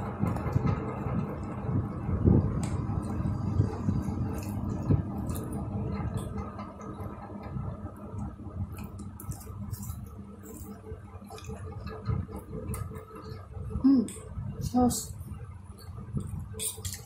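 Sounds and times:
faint steady hum: 0.0 - 17.0
people chewing: 8.8 - 12.0.

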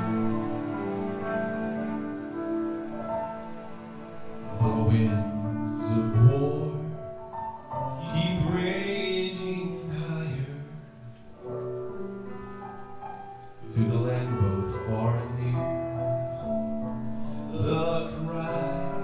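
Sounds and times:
instrumental accompaniment: 0.0 - 19.0
man singing slow song: 4.4 - 11.2, 13.6 - 16.6, 17.3 - 19.0.

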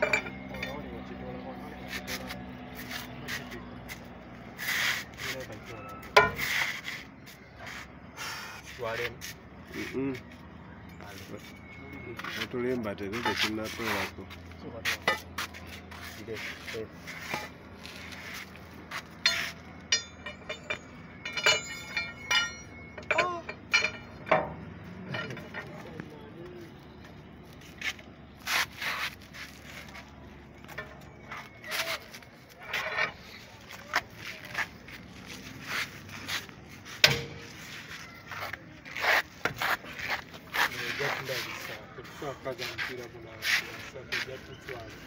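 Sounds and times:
spanner clinking on metal: 0.0 - 0.9, 19.2 - 25.7
steel bar scraping and clinking: 0.0 - 1.1, 15.9 - 25.8, 30.6 - 34.6.

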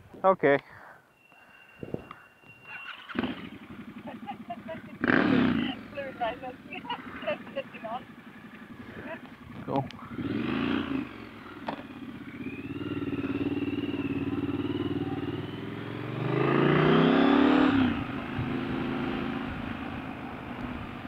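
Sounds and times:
motorcycle engine accelerating: 2.6 - 21.0.

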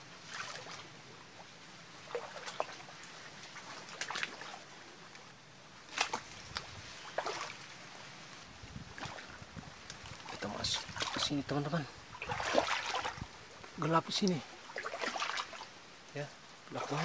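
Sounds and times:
footsteps sloshing through water: 0.2 - 17.0.

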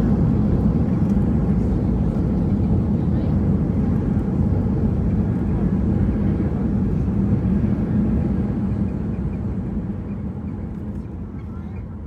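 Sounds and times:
low rumble inside airplane cabin: 0.0 - 12.0.

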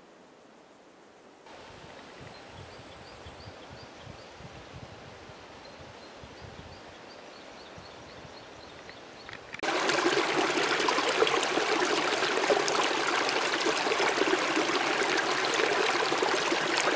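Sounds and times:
stream gurgling over stones: 9.6 - 16.9.

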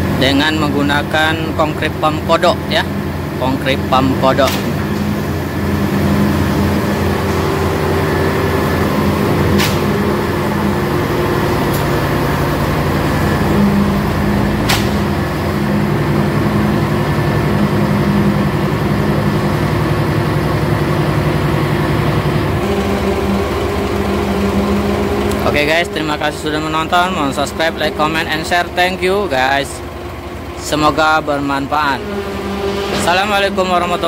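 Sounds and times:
concrete pump engine running: 0.0 - 34.0
sharp knocks: 14.6 - 15.2.

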